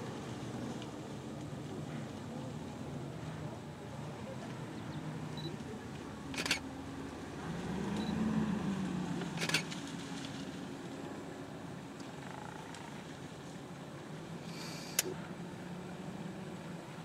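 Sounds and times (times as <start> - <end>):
camera shutter clicks: 6.4 - 6.6, 9.4 - 9.7.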